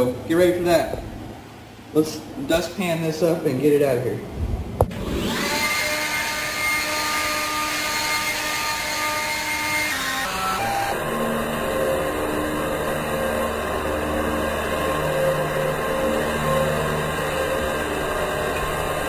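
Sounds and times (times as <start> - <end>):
leaf blower running: 5.0 - 19.0.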